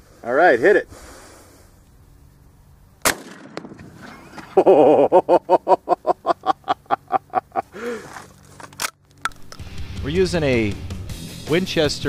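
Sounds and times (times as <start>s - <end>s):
shotgun shot: 3.0s - 4.3s.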